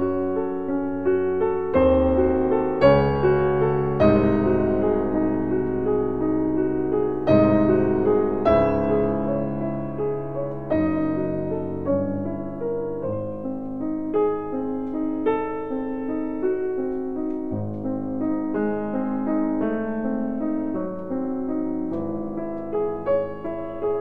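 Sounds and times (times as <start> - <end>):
slow gentle piano: 0.0 - 24.0.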